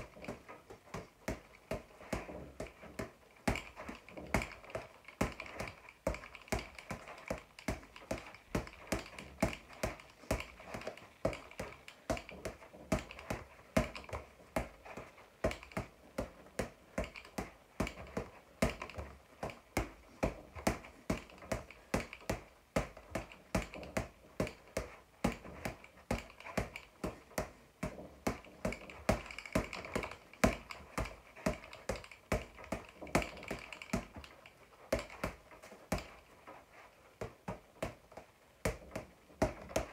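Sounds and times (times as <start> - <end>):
boxing gloves hitting ball: 0.0 - 39.9.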